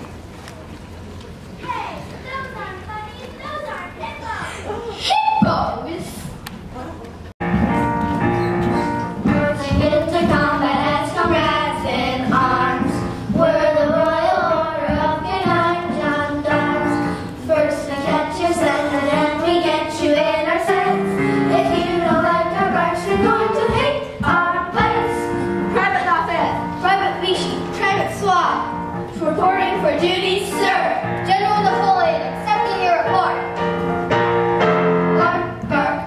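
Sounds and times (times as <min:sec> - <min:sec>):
instrumental accompaniment: 0:07.4 - 0:36.0
children singing: 0:08.8 - 0:28.0.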